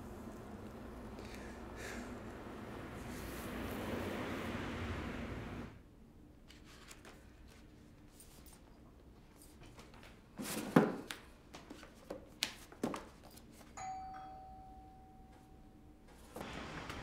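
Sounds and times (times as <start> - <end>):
bell-like chime: 13.8 - 15.9.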